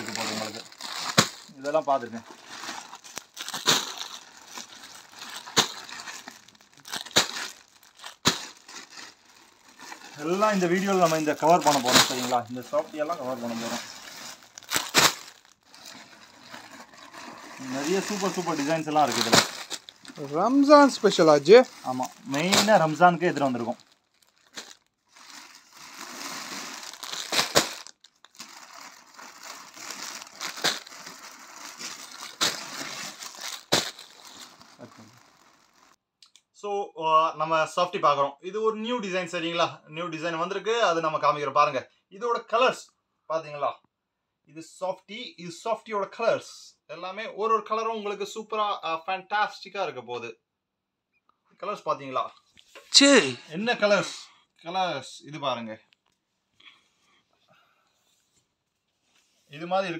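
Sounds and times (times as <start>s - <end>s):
plastic crackling: 0.0s - 36.0s
plastic packets crinkling: 0.0s - 36.0s
crackly plastic slaps: 33.6s - 34.0s.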